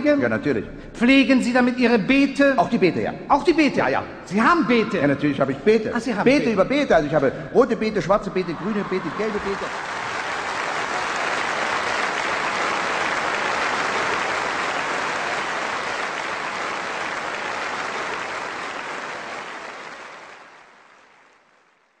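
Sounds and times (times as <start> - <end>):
audience applauding: 8.4 - 21.9.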